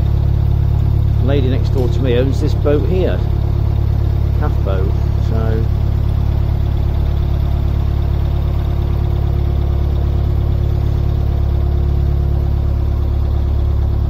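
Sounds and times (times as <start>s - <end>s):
diesel boat engine running: 0.0s - 14.0s.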